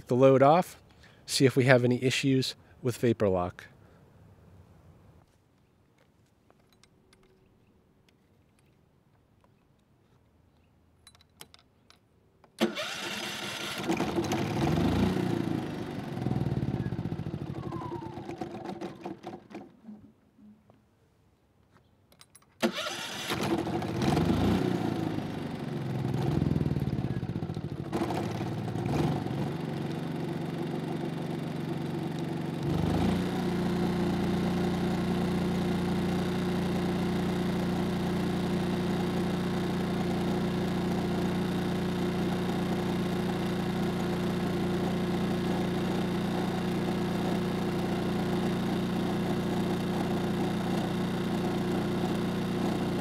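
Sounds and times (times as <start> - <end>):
generator engine running: 12.6 - 19.7, 22.6 - 53.0.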